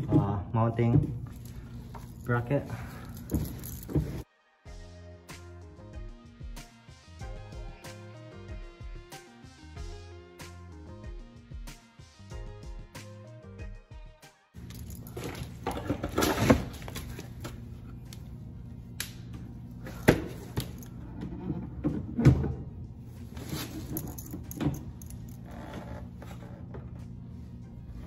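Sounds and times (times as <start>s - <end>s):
steady low hum: 14.6s - 28.0s.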